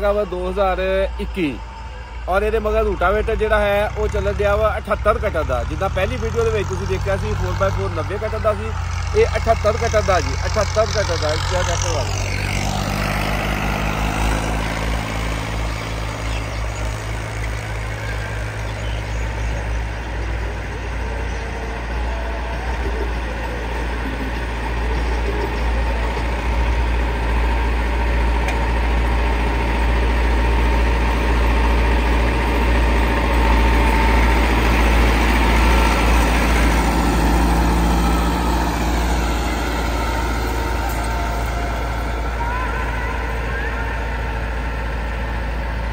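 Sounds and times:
tractor diesel engine running: 0.0s - 45.9s.

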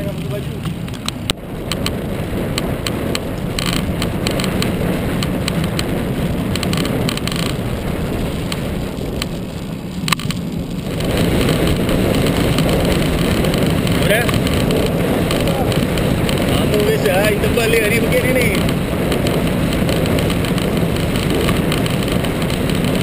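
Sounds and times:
wind buffeting microphone: 0.0s - 23.0s
small ticks: 0.6s - 5.9s, 6.5s - 16.5s.

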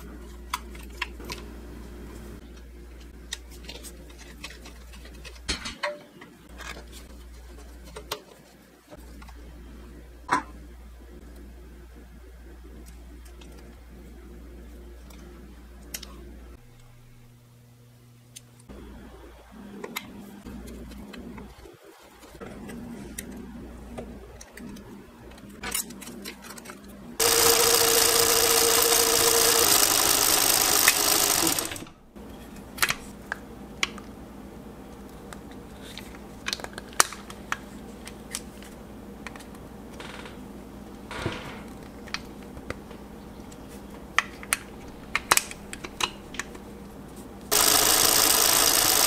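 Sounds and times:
sewing machine running: 27.2s - 32.0s, 47.5s - 49.0s.

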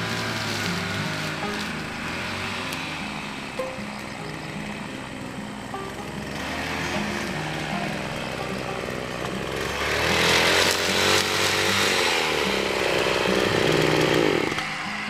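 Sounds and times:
brush cutter cutting grass: 0.0s - 15.0s.

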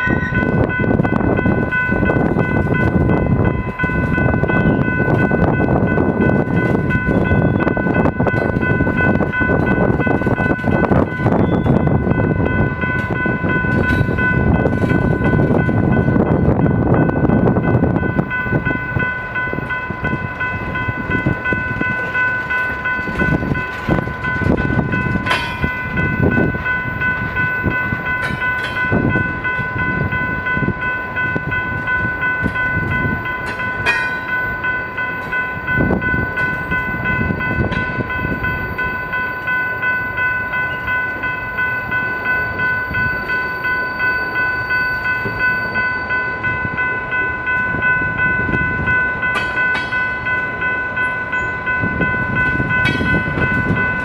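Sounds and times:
train rumble: 0.0s - 54.0s
train wheels clacking on rail joints: 0.0s - 54.0s.

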